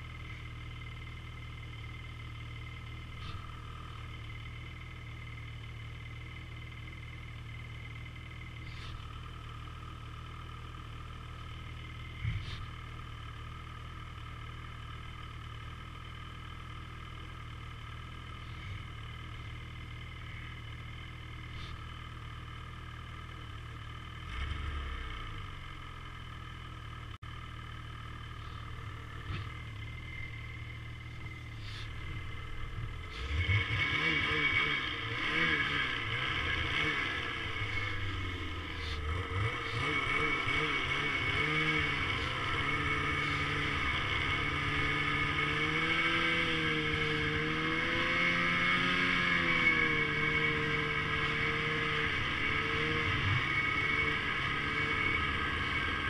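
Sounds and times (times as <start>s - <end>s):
low rumble: 0.0s - 14.4s, 27.0s - 45.2s
snowmobile engine running: 0.0s - 56.0s.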